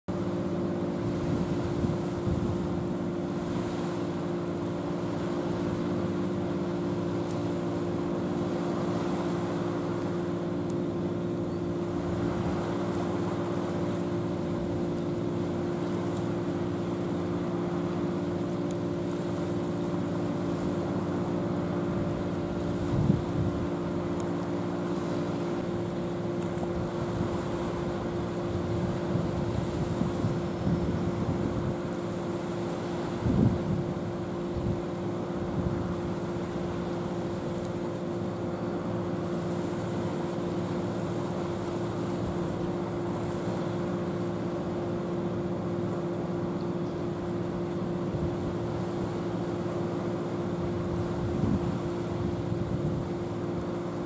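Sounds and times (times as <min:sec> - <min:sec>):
boat engine droning hum: 0:00.1 - 0:54.0
wind buffeting microphone: 0:01.0 - 0:02.8, 0:22.7 - 0:23.8, 0:28.5 - 0:31.8, 0:33.1 - 0:34.9, 0:51.0 - 0:53.2.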